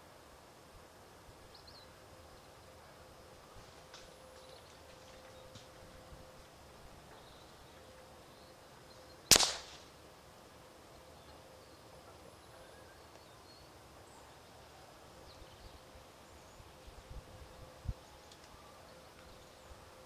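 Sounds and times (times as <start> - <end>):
suppressed rifle shot: 9.3 - 9.9.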